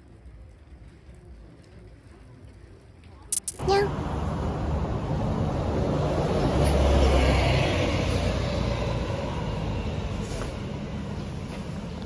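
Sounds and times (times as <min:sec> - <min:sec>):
street traffic: 0:00.0 - 0:12.0
bus engine rumbling: 0:03.4 - 0:12.0.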